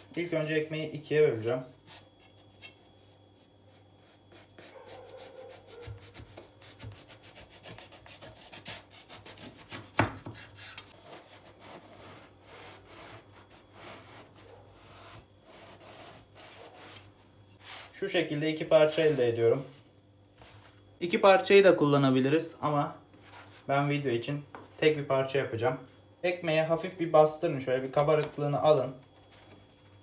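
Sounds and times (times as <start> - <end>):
knife sawing through bread crust: 1.8 - 17.9.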